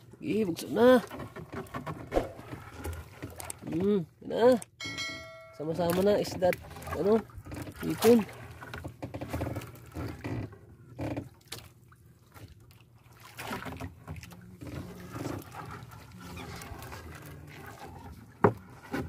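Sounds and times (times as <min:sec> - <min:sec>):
seawater dripping and splashing: 0:00.2 - 0:19.0
wet net swishing rustles: 0:02.1 - 0:02.6.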